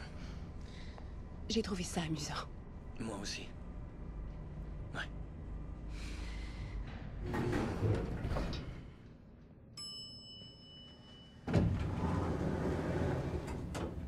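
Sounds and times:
elevator doors sliding open: 0:07.2 - 0:09.0, 0:11.5 - 0:14.0
elevator chime: 0:09.8 - 0:12.4.

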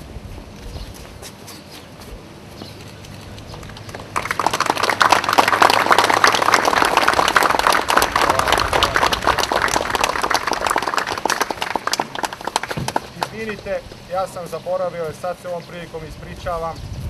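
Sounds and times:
audience applauding: 0:03.7 - 0:13.6.

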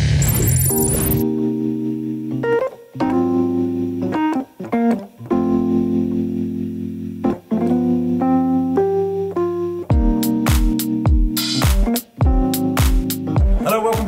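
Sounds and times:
sustained keyboard chords: 0:05.3 - 0:13.6.

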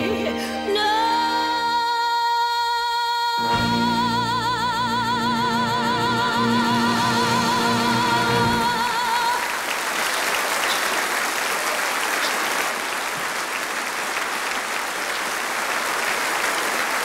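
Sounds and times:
audience applause: 0:07.0 - 0:17.0.

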